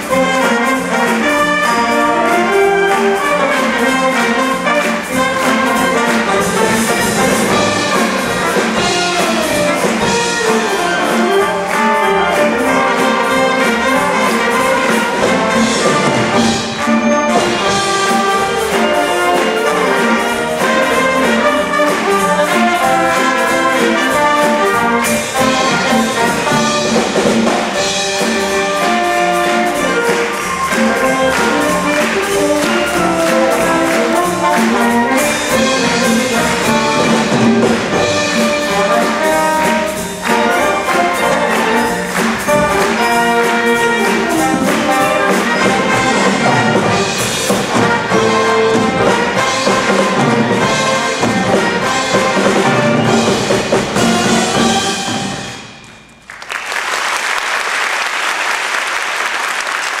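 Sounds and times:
wind band playing: 0.0s - 60.0s
audience applause: 3.5s - 22.4s, 28.2s - 48.0s, 56.2s - 60.0s.

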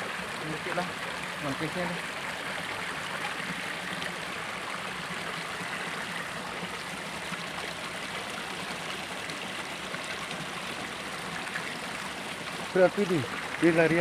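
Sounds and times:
creek water rushing over rocks: 0.0s - 14.0s.

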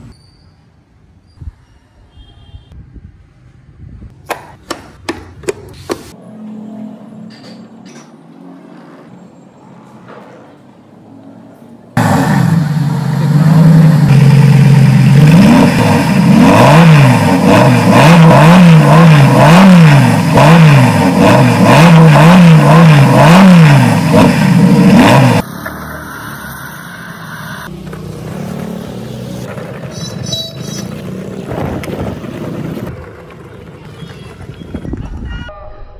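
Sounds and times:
car engine revving: 12.0s - 29.6s.

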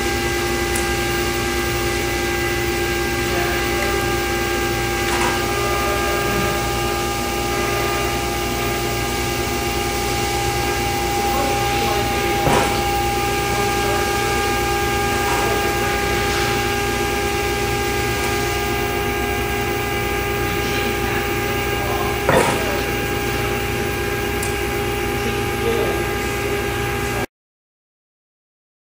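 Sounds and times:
machine drive humming: 0.0s - 27.3s
metal machine clunks: 5.0s - 5.6s, 12.2s - 13.8s, 22.2s - 23.0s.

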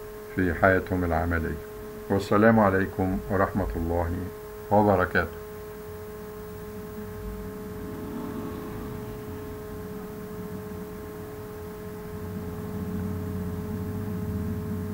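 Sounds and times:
steady background hum: 0.0s - 14.9s
constant whining tones: 5.3s - 14.9s
low hum: 5.6s - 14.2s.

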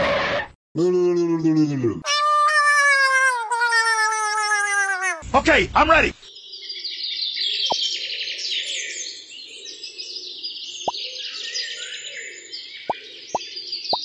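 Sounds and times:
birds chirping: 1.1s - 6.8s.

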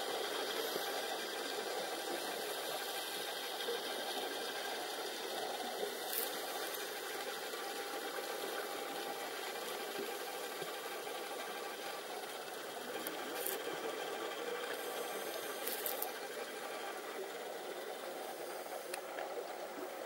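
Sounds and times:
underwater hiss: 0.0s - 4.5s, 13.2s - 16.2s
faint mechanical whirr: 0.0s - 20.0s.

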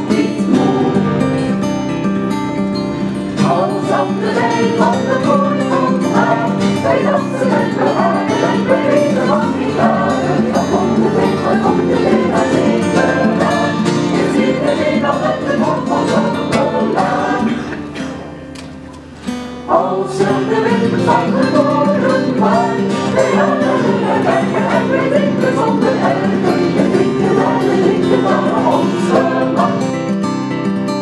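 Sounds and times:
choir singing in parts: 0.0s - 2.0s, 3.0s - 18.3s, 19.7s - 30.3s
guitar accompaniment: 0.0s - 31.0s.

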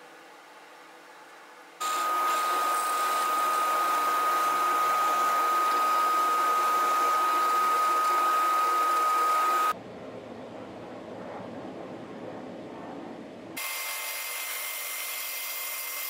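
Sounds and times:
drill bit cutting wood: 1.8s - 9.7s, 13.6s - 16.0s
drill press motor whine: 1.8s - 9.8s.

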